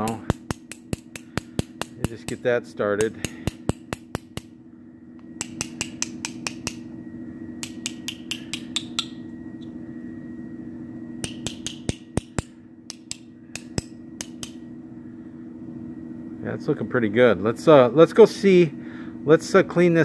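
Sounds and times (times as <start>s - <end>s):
small hammer tapping metal: 0.0s - 4.5s, 5.4s - 6.8s, 7.6s - 9.2s, 11.2s - 14.6s
steady low hum: 0.0s - 20.0s.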